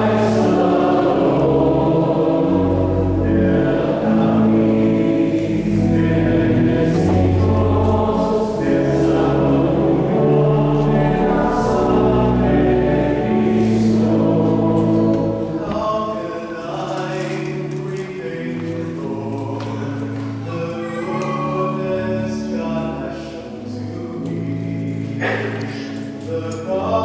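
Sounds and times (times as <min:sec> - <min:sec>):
low sustained chords: 0:00.0 - 0:16.8
church choir singing: 0:00.0 - 0:27.0.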